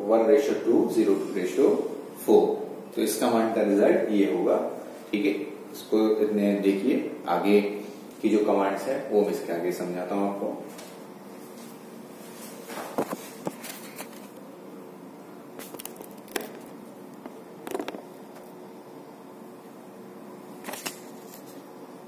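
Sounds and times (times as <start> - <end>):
room hum: 0.0 - 22.0.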